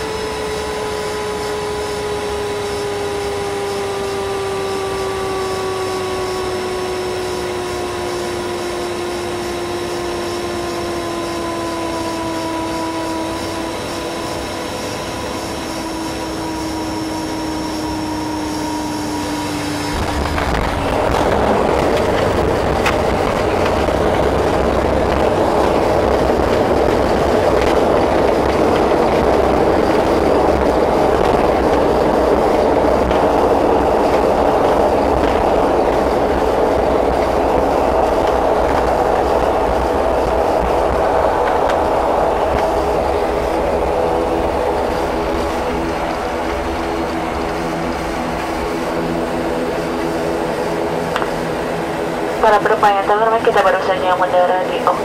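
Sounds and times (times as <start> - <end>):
propeller drone: 0.0 - 55.0
rough rushing noise of rollout: 19.6 - 52.4.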